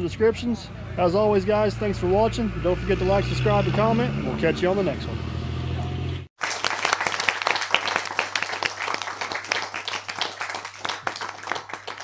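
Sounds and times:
applause: 6.4 - 12.0.

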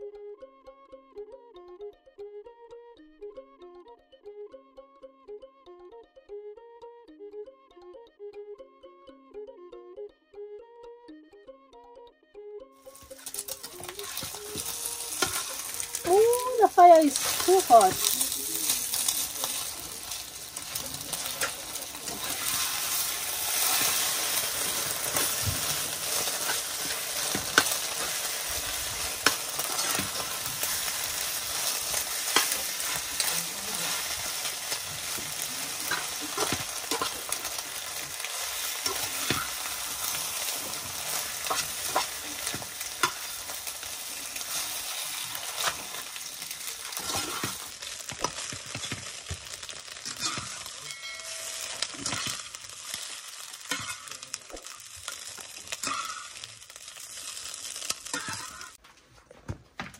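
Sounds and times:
food sizzling in a frying pan: 12.8 - 58.8
fork scraping a pan: 13.0 - 16.0, 29.2 - 30.8, 35.8 - 37.6, 38.8 - 39.7, 40.8 - 43.3, 44.2 - 49.0, 53.7 - 54.2.

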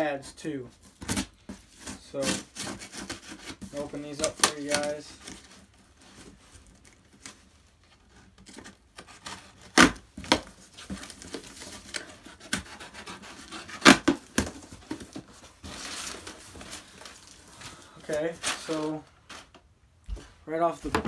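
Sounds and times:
cardboard scraping and rustling: 0.7 - 19.6
loud sharp cardboard noises: 0.8 - 7.4, 8.0 - 17.4
blade cutting packing tape: 11.8 - 14.5.

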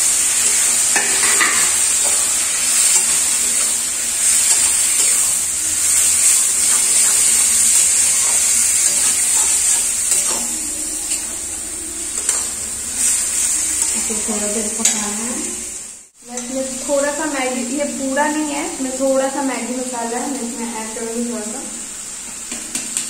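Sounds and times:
frying food sizzling: 0.0 - 23.0
spatula scraping and clinking pan: 0.8 - 5.3, 5.9 - 14.0.

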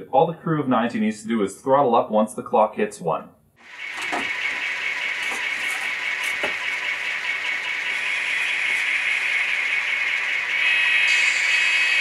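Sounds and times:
model locomotive rattling: 3.6 - 12.0.

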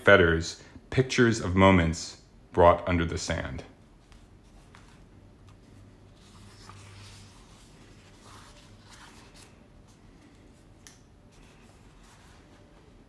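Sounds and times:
book pages rustling: 4.0 - 13.0.

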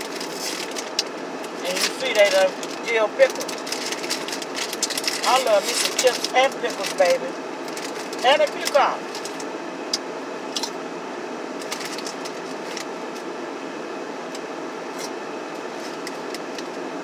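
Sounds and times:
potato chips crunching: 0.0 - 7.1
steady rushing car cabin noise: 0.0 - 9.4
chip bag crinkling: 0.0 - 9.5, 11.6 - 12.9.

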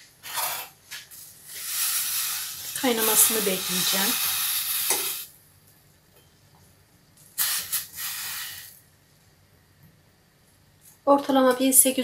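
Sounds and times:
water sizzling in a pan: 1.4 - 5.3, 7.4 - 8.7.

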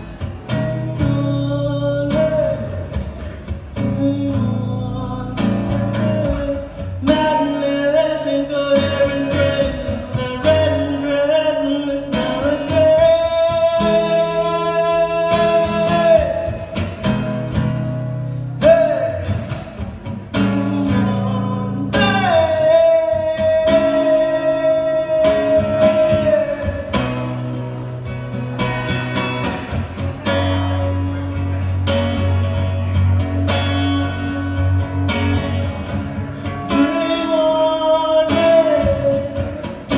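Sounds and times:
man singing: 0.0 - 17.1, 18.6 - 27.5, 36.2 - 39.9
acoustic guitar: 0.0 - 39.9.

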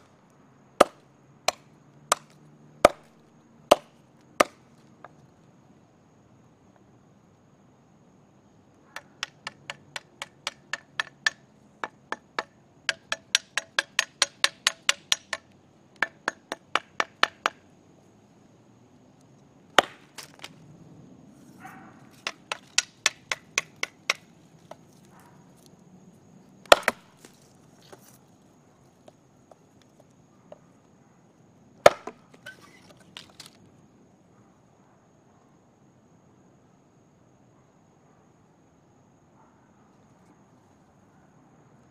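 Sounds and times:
machete chopping wooden stick: 0.8 - 4.7, 9.0 - 15.4, 19.7 - 20.6, 21.6 - 24.9, 26.6 - 28.2, 31.8 - 33.6.

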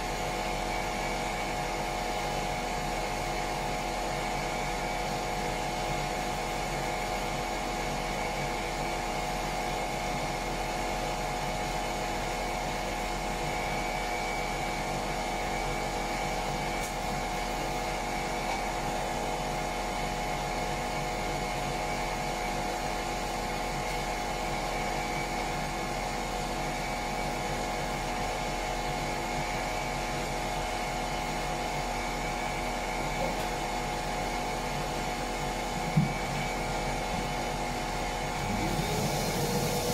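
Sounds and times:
electric sander running: 38.3 - 39.9.

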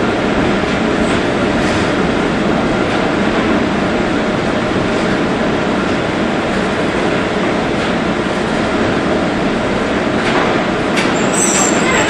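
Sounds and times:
streetcar wheels rumbling: 0.0 - 12.0
high-pitched wheel squeal: 11.1 - 12.0.

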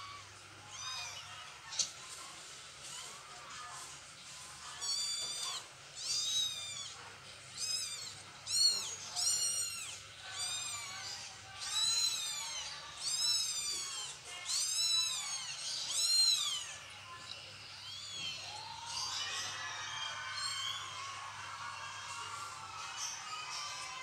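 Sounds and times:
kittens mewing: 4.8 - 16.8.

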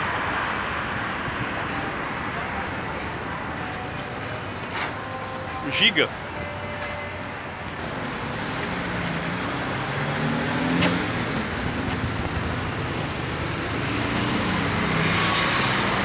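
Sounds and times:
traffic passing: 0.0 - 16.0.

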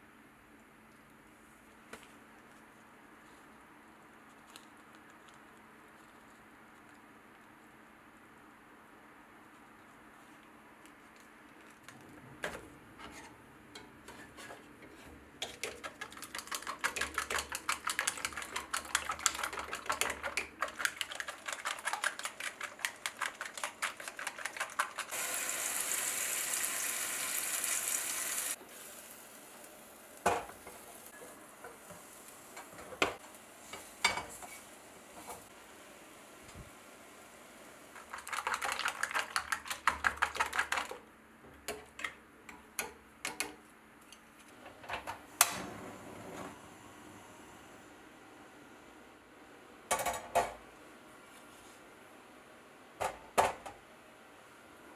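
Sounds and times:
chopsticks beating eggs in metal cup: 15.4 - 25.2, 38.0 - 41.0
sizzling: 18.4 - 38.4.

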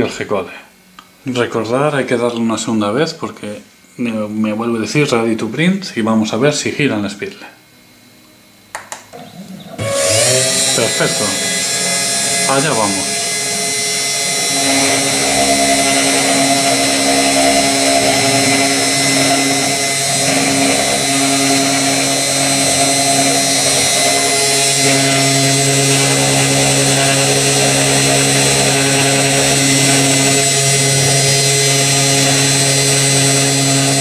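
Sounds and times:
spindle motor high whine: 0.0 - 34.0
stepper motors humming: 7.7 - 34.0.

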